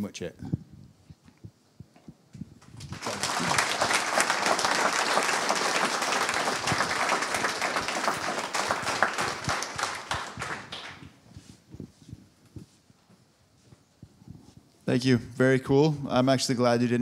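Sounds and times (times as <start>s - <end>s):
audience applauding: 2.6s - 11.2s.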